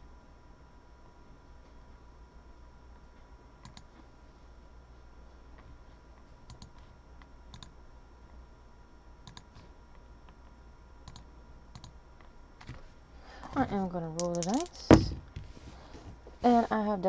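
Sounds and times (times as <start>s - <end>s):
low electrical hum: 0.0s - 17.0s
computer mouse clicking: 3.6s - 3.9s, 6.4s - 7.7s, 9.2s - 10.4s, 11.0s - 12.8s, 14.2s - 14.7s.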